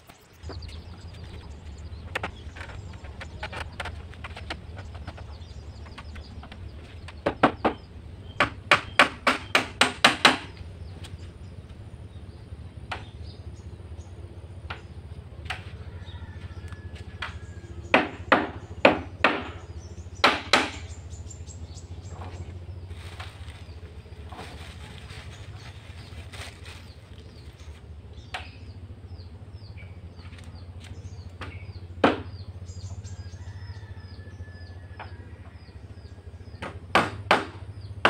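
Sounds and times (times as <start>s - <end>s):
hammer striking nails into wood: 8.4s - 10.5s, 17.9s - 19.6s, 20.2s - 20.9s, 36.6s - 37.6s.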